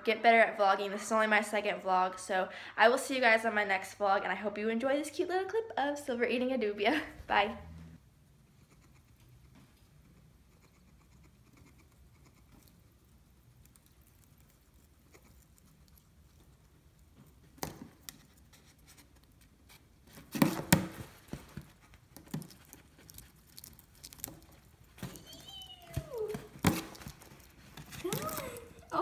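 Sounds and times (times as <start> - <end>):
hedgehog crunching an insect: 8.6 - 29.0.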